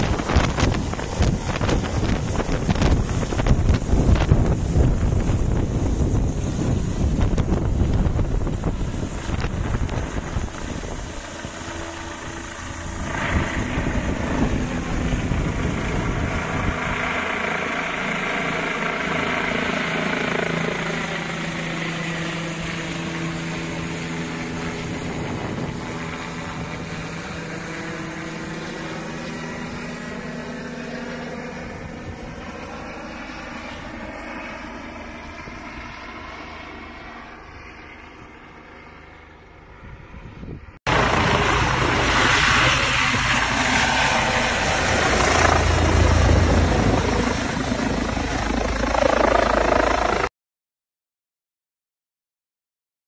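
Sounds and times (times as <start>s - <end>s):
wind buffeting microphone: 0.0s - 17.4s, 23.6s - 30.1s, 39.8s - 50.3s
helicopter flying overhead: 0.0s - 50.3s.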